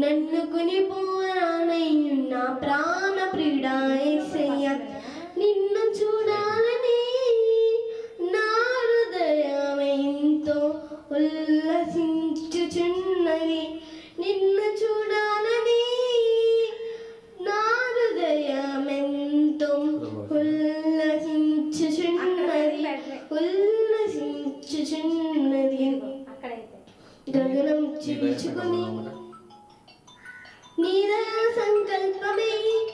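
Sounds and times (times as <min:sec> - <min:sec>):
girl singing: 0:00.0 - 0:29.4, 0:30.3 - 0:32.9
girl breathing: 0:04.8 - 0:05.4, 0:07.8 - 0:08.2, 0:13.7 - 0:14.2, 0:16.8 - 0:17.4.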